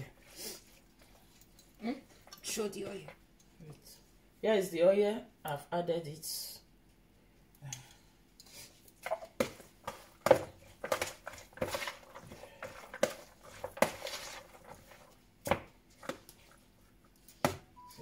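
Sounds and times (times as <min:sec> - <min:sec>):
spoon scraping a mixing bowl: 0:10.8 - 0:15.2.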